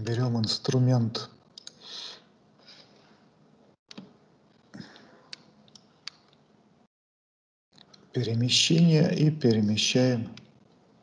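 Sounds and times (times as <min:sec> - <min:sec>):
quiet breath in: 0:01.8 - 0:03.2.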